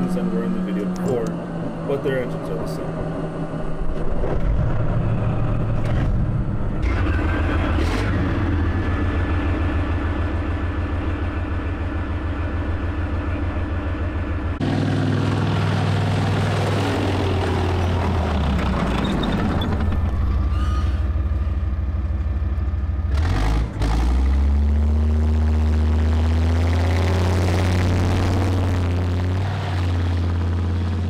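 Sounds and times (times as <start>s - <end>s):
tank driving off: 0.0s - 31.0s
tank engine starting and running: 0.0s - 31.0s.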